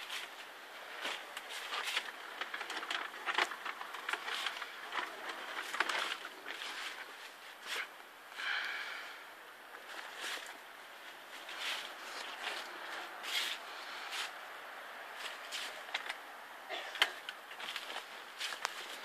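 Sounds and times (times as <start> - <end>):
plastic sheeting rustling: 0.0 - 8.0, 9.7 - 16.2, 16.8 - 19.0
footsteps: 9.9 - 14.4, 15.2 - 16.1, 16.9 - 19.0.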